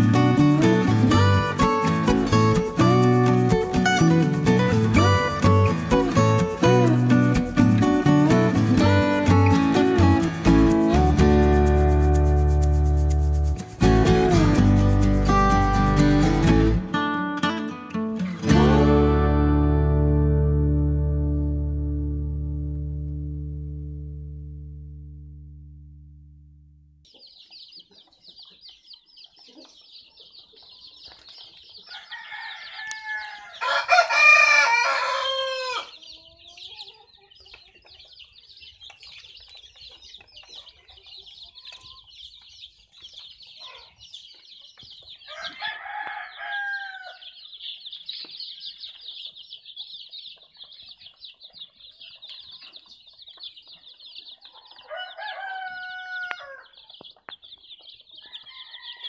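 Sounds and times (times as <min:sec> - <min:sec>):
chicks peeping: 0:00.0 - 0:16.9, 0:27.0 - 0:59.0
rooster crowing: 0:31.9 - 0:36.0, 0:45.3 - 0:47.4, 0:54.5 - 0:56.8, 0:58.2 - 0:59.0.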